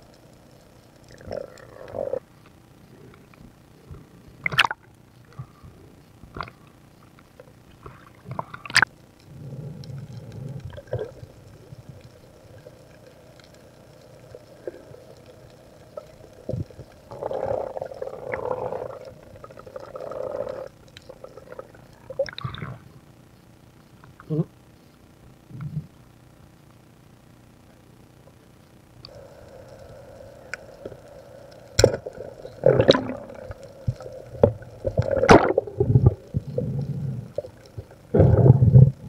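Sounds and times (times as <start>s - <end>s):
water sloshing and gurgling: 4.4s - 5.5s, 30.5s - 39.0s.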